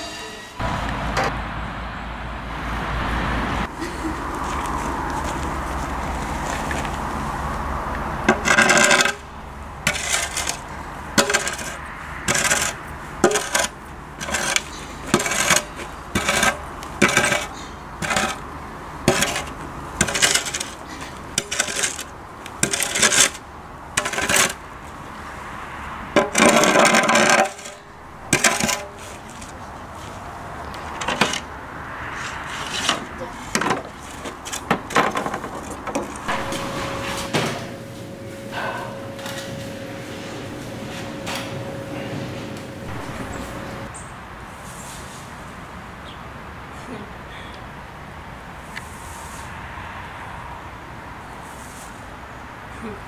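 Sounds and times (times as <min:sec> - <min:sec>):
low hum: 0:00.0 - 0:22.2, 0:35.8 - 0:44.1
manure fork scraping over gravel: 0:04.4 - 0:07.5, 0:08.2 - 0:24.9, 0:26.2 - 0:43.9.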